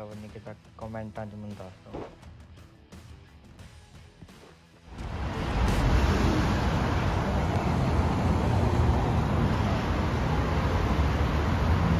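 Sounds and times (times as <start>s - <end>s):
car and bus engines rumbling: 4.9s - 11.9s
road noise hiss: 4.9s - 11.9s.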